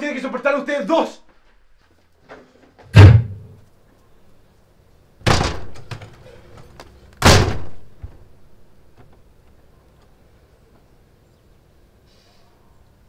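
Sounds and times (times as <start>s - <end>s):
door slamming: 2.9s - 3.6s, 5.2s - 6.2s, 7.2s - 8.4s
loud thuds: 2.9s - 3.6s, 5.2s - 6.0s, 7.2s - 8.4s.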